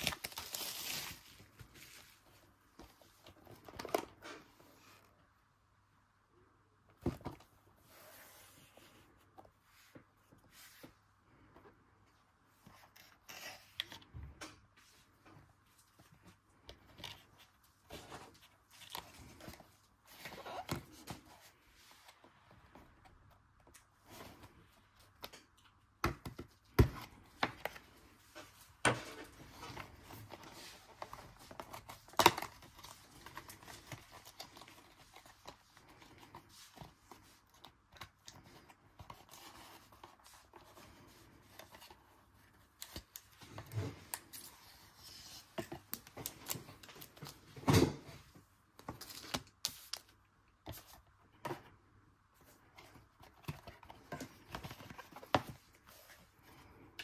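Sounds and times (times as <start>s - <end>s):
wrapping tearing and crinkling: 0.0s - 2.0s.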